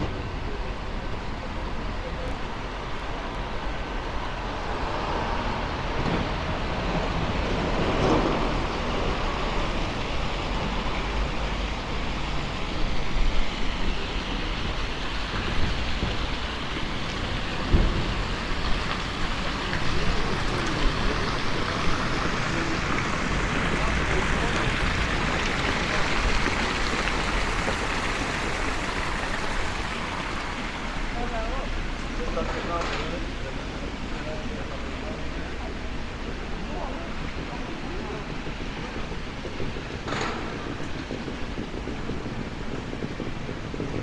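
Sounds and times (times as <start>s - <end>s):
distant road traffic hiss: 0.0s - 44.0s
low knocks: 17.6s - 18.9s.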